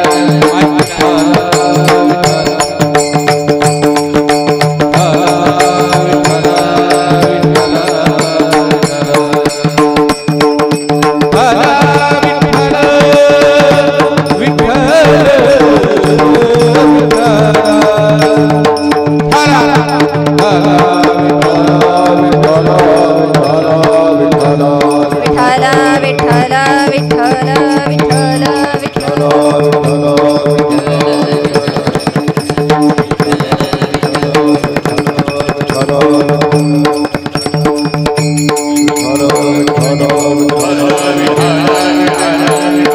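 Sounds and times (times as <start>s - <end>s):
hand drum: 0.0s - 42.9s
wavering melody: 13.8s - 42.9s.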